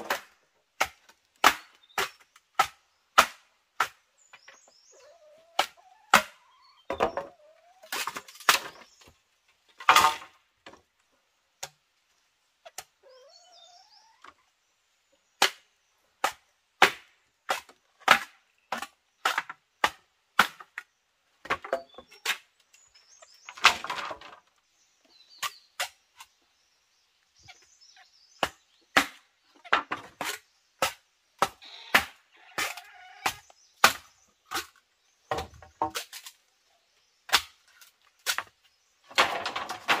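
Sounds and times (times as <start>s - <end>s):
sharp strikes on wood: 0.8s - 4.0s, 5.6s - 7.2s.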